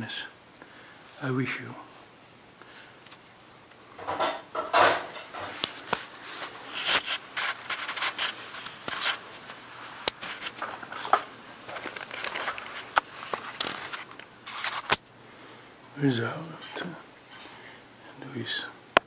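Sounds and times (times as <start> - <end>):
camera handling scraping: 6.7 - 9.2, 10.0 - 15.0.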